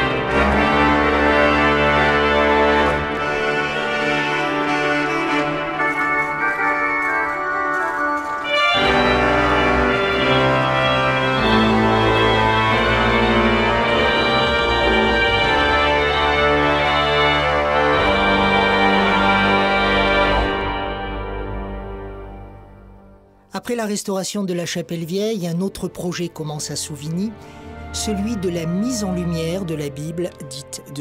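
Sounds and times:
pipe organ chords: 0.0 - 23.4, 26.3 - 31.0
deep bass organ notes: 8.7 - 23.2.

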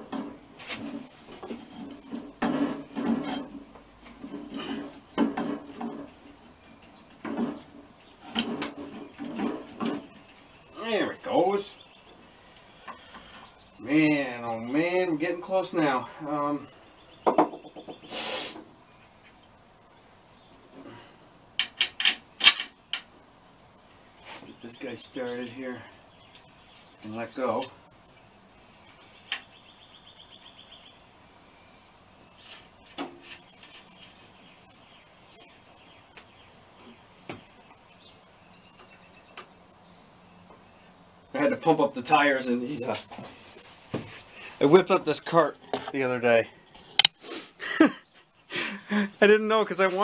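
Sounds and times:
metal tools knocking and clattering: 2.0 - 6.1, 21.6 - 23.1.

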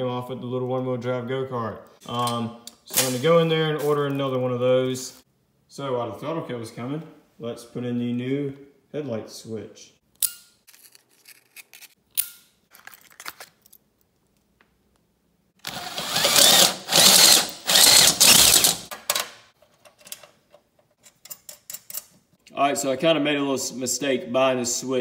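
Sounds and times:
handling noises and clicks: 10.2 - 15.1
power drill boring through panel: 15.6 - 18.9.

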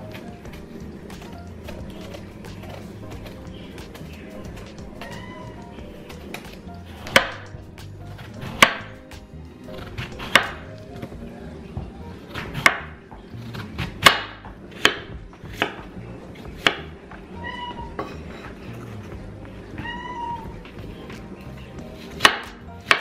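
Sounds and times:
knife striking wooden cutting board: 6.1 - 10.7, 12.3 - 13.0, 13.8 - 15.9, 16.5 - 16.9, 22.2 - 23.0.

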